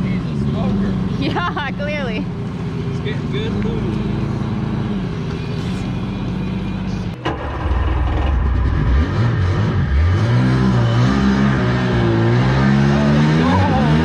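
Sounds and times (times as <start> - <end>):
engine speeding up: 3.0 - 14.0.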